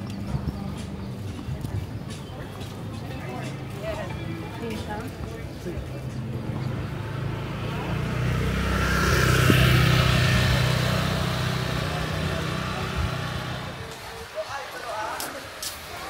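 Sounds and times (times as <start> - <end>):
vehicle engine passing by: 6.3 - 13.9.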